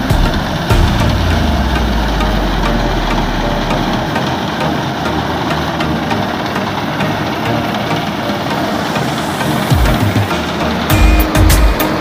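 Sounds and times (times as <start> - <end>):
deep low rumble: 0.0 - 4.3
combine harvester running: 0.0 - 12.0.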